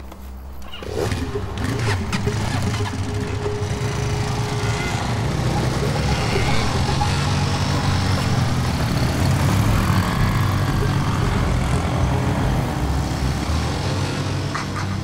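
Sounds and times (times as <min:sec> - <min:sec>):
small motorcycle engines: 0:00.6 - 0:15.0.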